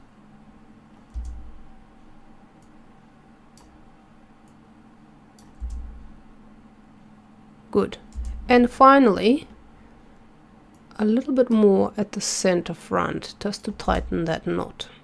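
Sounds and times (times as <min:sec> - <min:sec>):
faint steady hum: 0:00.0 - 0:15.0
computer mouse clicking: 0:01.0 - 0:01.7, 0:02.6 - 0:02.8, 0:03.5 - 0:03.8, 0:05.4 - 0:06.1, 0:08.1 - 0:08.5
dull low thumps: 0:05.6 - 0:06.2, 0:08.1 - 0:08.6, 0:13.8 - 0:14.4.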